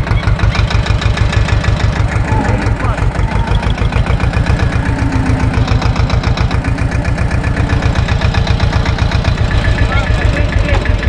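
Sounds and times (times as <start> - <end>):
tractor diesel engine chugging: 0.0 - 11.0.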